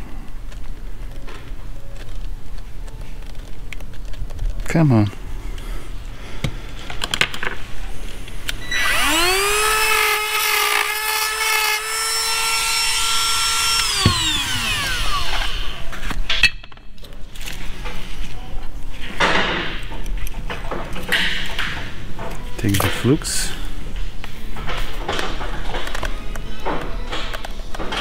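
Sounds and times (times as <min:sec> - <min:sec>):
clicks and handling noise: 0:00.2 - 0:05.7, 0:06.4 - 0:08.6, 0:24.2 - 0:28.0
power tool motor whine: 0:08.6 - 0:15.9.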